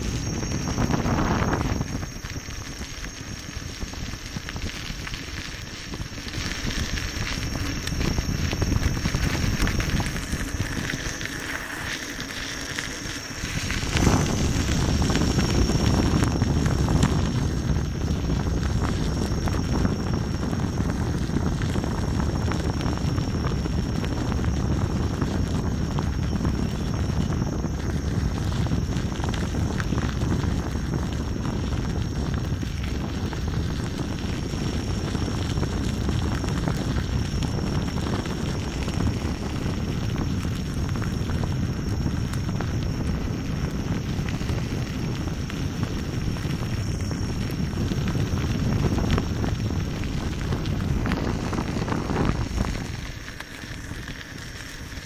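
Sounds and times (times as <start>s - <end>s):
wind rushing on microphone: 0.0s - 55.0s
tyre rolling over gravel: 0.1s - 19.6s.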